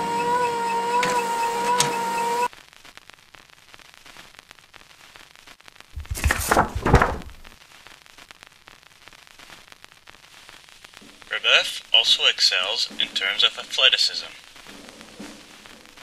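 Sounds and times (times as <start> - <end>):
printer feeding paper: 0.0 - 2.5
faint hiss: 7.6 - 16.0.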